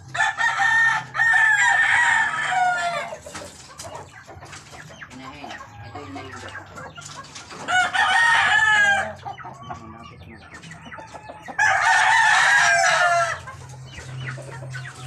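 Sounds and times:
rooster crowing: 0.1s - 3.2s, 7.7s - 9.2s, 11.2s - 13.4s
soft clucking: 3.1s - 8.0s.

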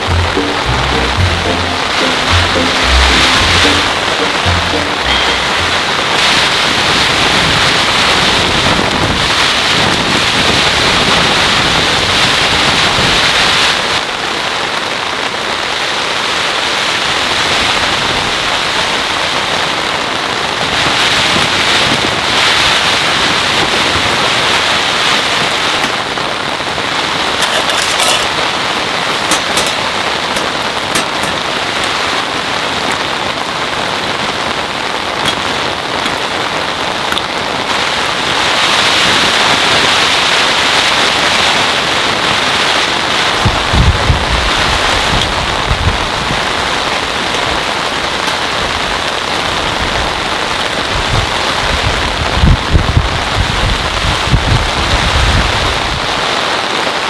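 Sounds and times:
heavy rain on tent fabric: 0.0s - 57.0s
metal bowls clinking: 27.4s - 28.4s, 29.2s - 31.4s.

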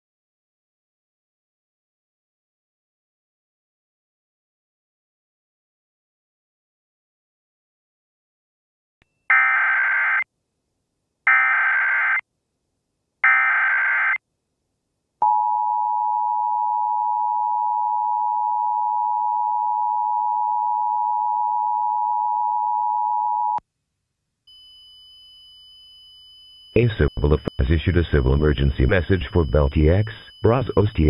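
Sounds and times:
two-tone attention signal: 26.7s - 31.0s
buzzy digital data screech: 26.8s - 31.0s.

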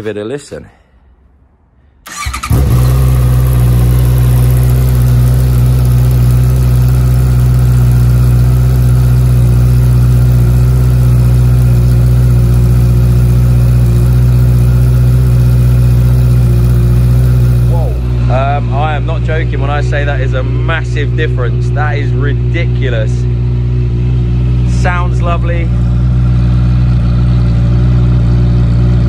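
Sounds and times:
starter motor turning: 2.1s - 6.5s
motorcycle engine idling loudly: 2.2s - 29.0s.

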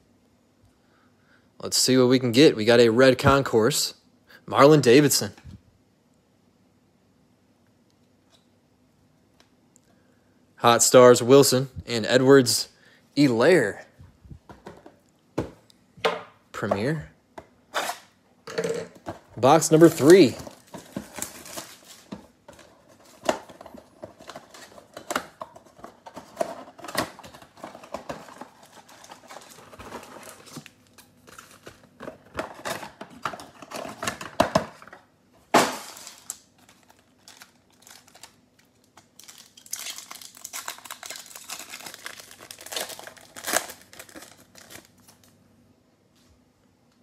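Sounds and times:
foil packs crinkling: 19.4s - 34.6s, 35.6s - 45.4s
sharp crack: 35.5s - 36.4s.

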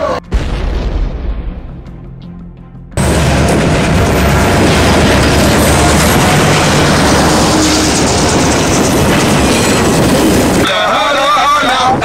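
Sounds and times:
wagons rolling on rails: 3.0s - 10.6s
diesel engine rumble: 3.0s - 10.7s.

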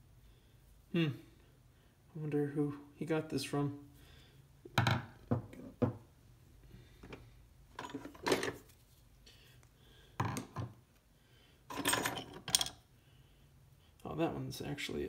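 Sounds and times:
screwdrivers clacking on wooden table: 11.7s - 12.8s.

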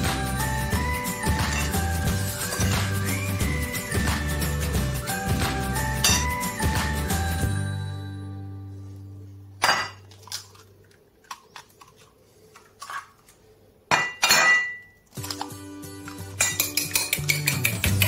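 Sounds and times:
background music: 0.0s - 9.7s, 15.1s - 18.0s
dishes and utensils clinking: 1.2s - 3.0s, 5.8s - 6.6s, 9.6s - 10.6s, 13.9s - 18.0s
dishes clattering: 6.0s - 6.3s, 9.6s - 10.6s, 13.9s - 15.4s, 16.0s - 18.0s.

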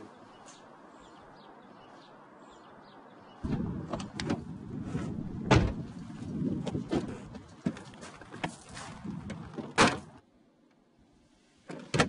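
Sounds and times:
car door shutting: 5.4s - 5.9s.

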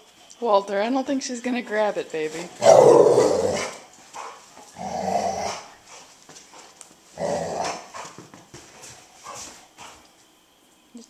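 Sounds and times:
dog growling: 2.5s - 8.2s.

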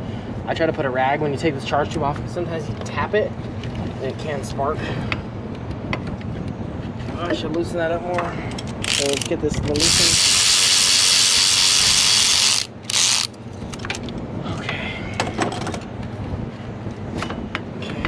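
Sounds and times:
power ratchet running: 8.7s - 13.4s
clicks and knocks of handling parts: 12.9s - 14.2s.

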